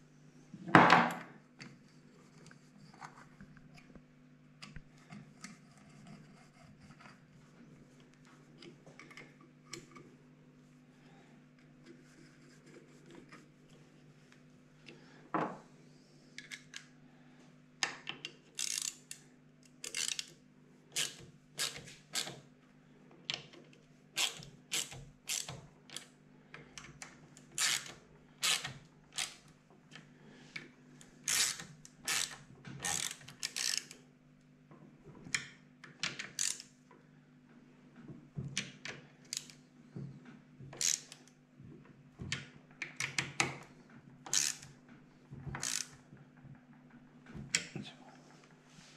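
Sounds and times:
faint steady hum: 0:00.0 - 0:48.9
ratchet wrench clicking: 0:18.6 - 0:19.2, 0:19.8 - 0:20.3, 0:24.2 - 0:26.0, 0:27.6 - 0:29.4, 0:31.3 - 0:34.0, 0:36.4 - 0:36.7, 0:40.8 - 0:41.1, 0:44.3 - 0:44.6, 0:45.6 - 0:45.9.

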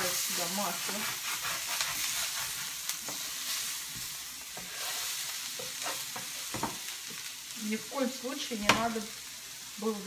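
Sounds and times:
spatula scraping pan: 0:00.0 - 0:06.9
onions sizzling in frying pan: 0:00.0 - 0:10.0.

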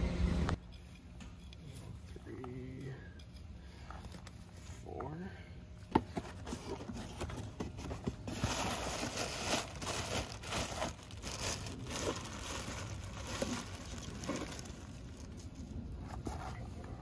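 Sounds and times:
plastic bag crinkling: 0:08.2 - 0:15.6.

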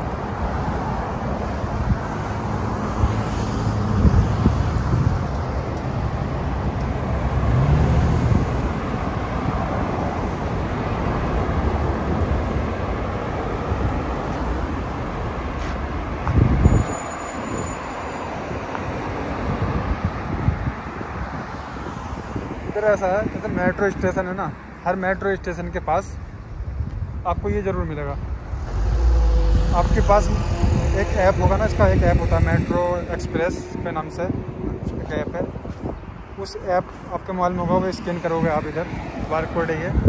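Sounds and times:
road traffic passing: 0:00.0 - 0:40.0
vehicle speeding up: 0:05.8 - 0:09.0, 0:27.6 - 0:35.4
brief low rumble: 0:28.0 - 0:34.2.

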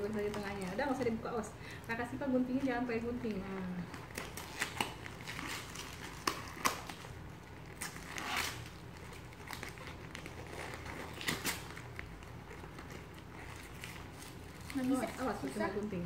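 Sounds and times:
wrapping paper tearing and crinkling: 0:00.0 - 0:01.3, 0:02.9 - 0:16.0.

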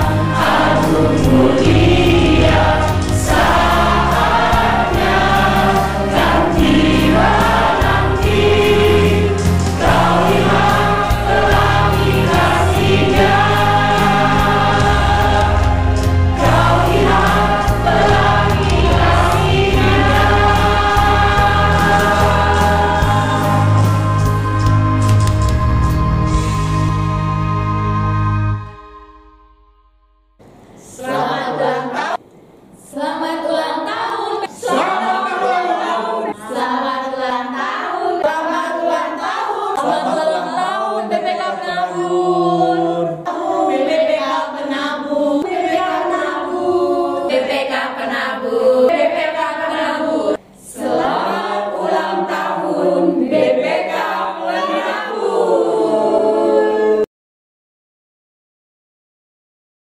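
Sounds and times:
group of voices singing: 0:00.0 - 0:25.6, 0:30.8 - 0:57.1.

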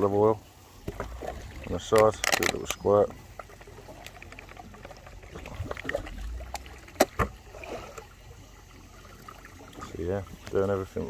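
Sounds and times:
water lapping against boat hull: 0:00.7 - 0:11.0.

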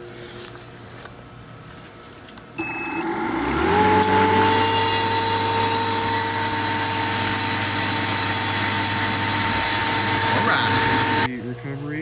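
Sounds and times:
short beep: 0:02.6 - 0:03.1
machine motor humming: 0:02.6 - 0:11.3.

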